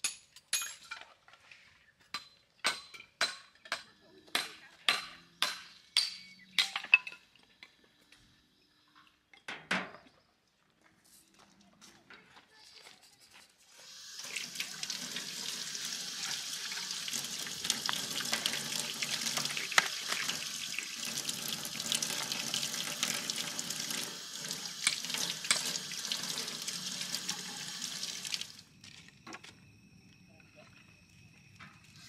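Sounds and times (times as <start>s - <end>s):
tap water running into sink: 13.8s - 28.6s.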